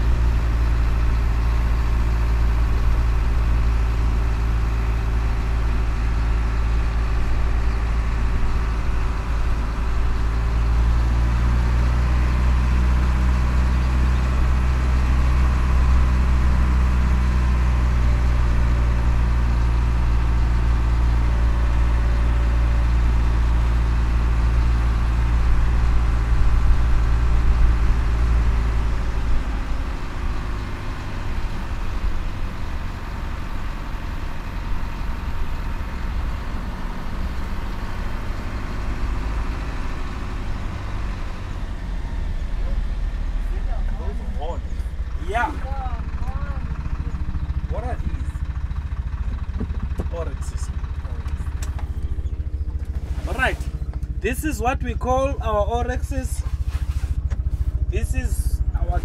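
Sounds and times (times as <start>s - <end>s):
vehicle engine droning: 0.0s - 59.0s.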